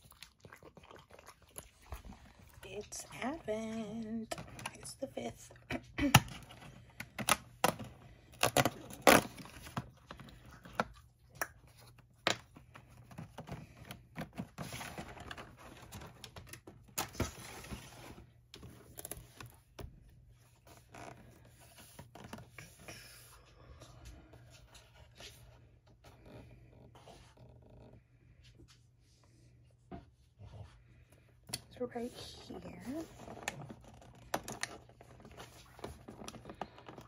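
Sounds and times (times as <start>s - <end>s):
cardboard tearing and clicking: 6.0s - 10.0s.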